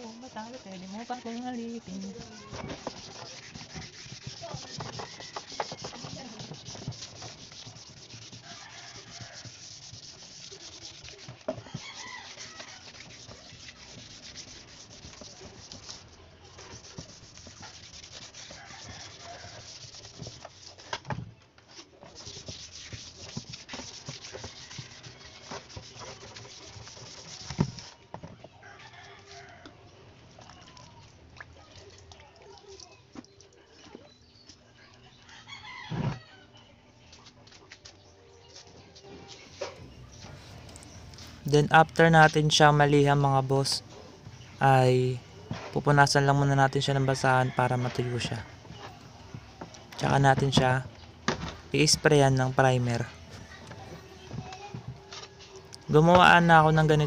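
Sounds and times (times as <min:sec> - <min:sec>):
sandpaper rubbing on plastic: 0:00.0 - 0:21.0, 0:21.7 - 0:28.0, 0:39.3 - 0:57.0.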